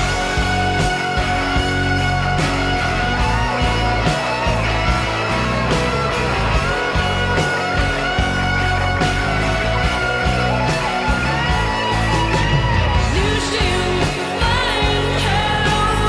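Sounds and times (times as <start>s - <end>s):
instrumental music with held notes: 0.0s - 16.0s.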